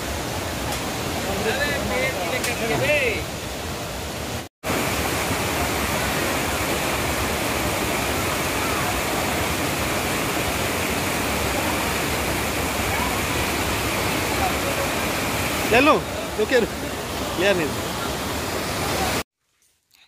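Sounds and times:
loud steady rushing noise: 4.2 - 19.2.

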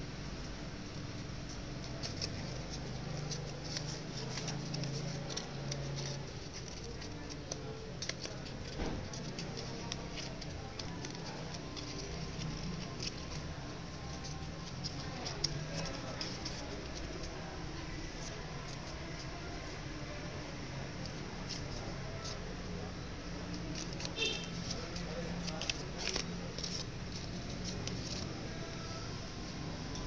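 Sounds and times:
paper crinkling: 1.3 - 22.4, 23.2 - 29.0.

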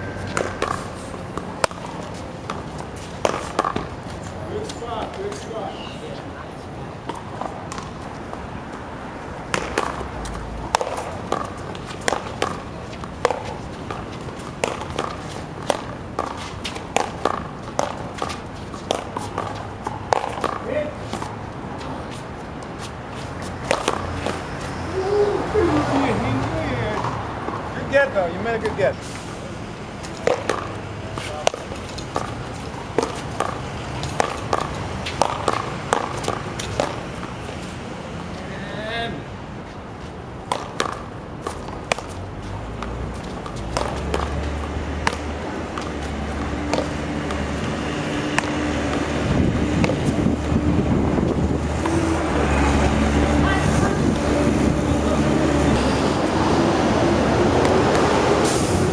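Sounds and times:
paddles smacking rubber ball: 0.3 - 3.9, 9.4 - 21.4, 23.6 - 24.4, 30.1 - 37.1, 40.4 - 42.2, 42.8 - 49.2, 49.8 - 50.2
ball slapping concrete wall: 9.4 - 21.4, 23.6 - 24.4, 30.2 - 37.2, 40.5 - 42.1, 42.8 - 50.6.

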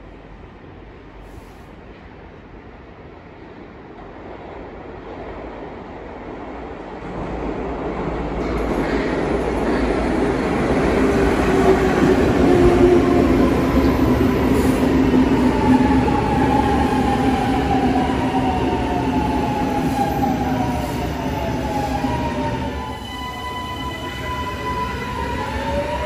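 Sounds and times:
metro train rumbling past: 0.0 - 26.0
train whine: 8.2 - 26.0.

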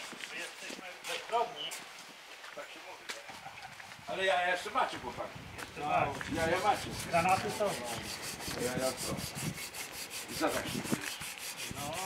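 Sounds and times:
hand sanding wood: 6.4 - 12.0.

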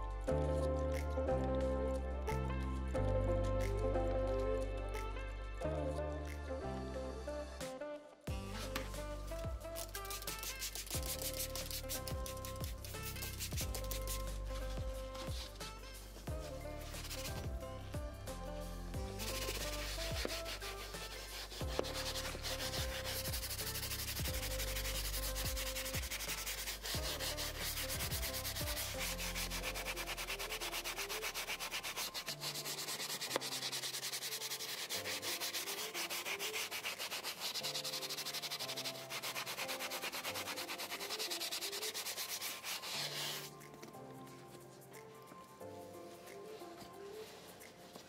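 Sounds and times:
faint background music: 0.0 - 48.0
brush scrubbing leather: 8.4 - 17.6, 19.0 - 44.6.

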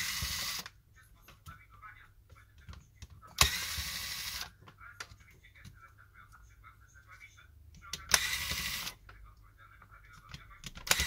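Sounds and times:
electric screwdriver whirring: 0.0 - 0.7, 3.4 - 4.5, 8.1 - 9.0.

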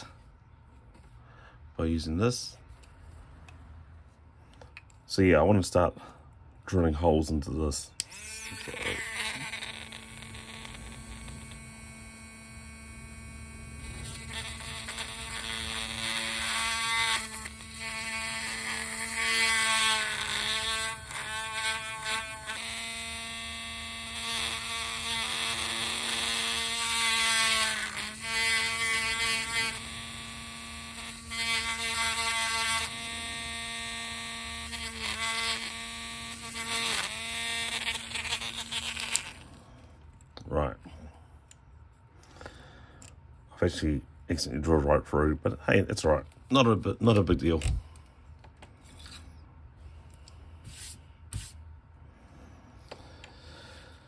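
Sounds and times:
electric drill drilling plastic: 8.0 - 39.4.

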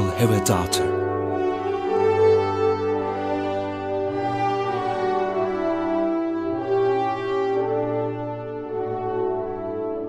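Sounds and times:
orchestral music with held notes: 0.0 - 10.0.

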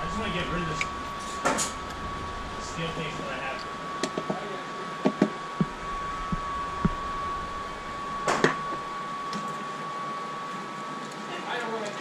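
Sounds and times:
thin steady tone: 0.0 - 3.9
ventilation hum: 0.0 - 12.0.

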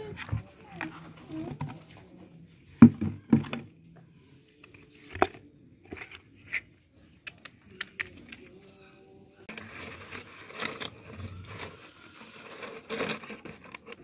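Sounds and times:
hard plastic knocking and scraping: 0.0 - 2.1, 2.8 - 3.7, 4.6 - 6.7, 9.5 - 14.0.

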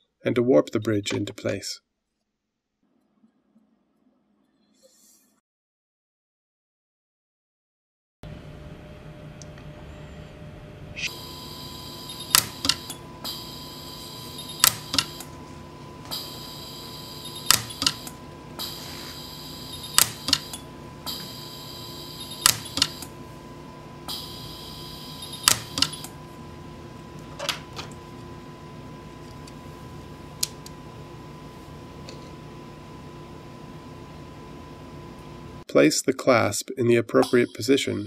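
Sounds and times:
high electronic whine: 10.9 - 26.7
welder sharp snaps: 14.6 - 15.3, 20.0 - 20.6.

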